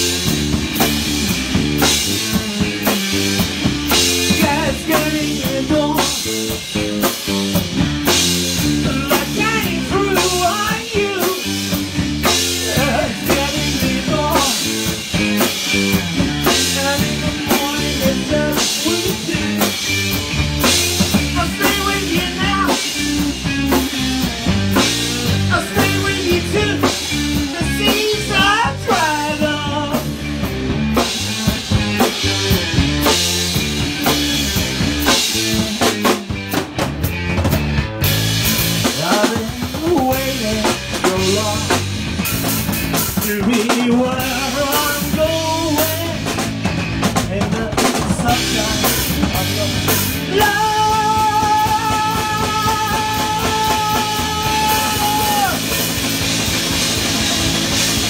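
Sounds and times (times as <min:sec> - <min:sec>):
bass guitar: 0:00.0 - 0:58.0
drum kit beat: 0:00.0 - 0:58.0
electric guitar: 0:00.0 - 0:58.0.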